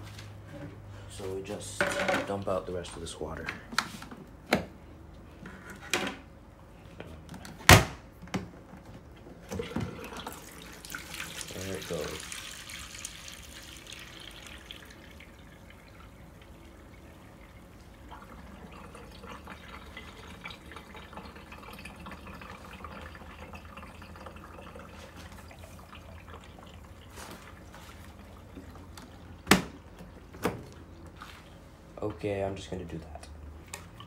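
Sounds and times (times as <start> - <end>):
water splashing into plastic bucket: 9.5 - 16.2.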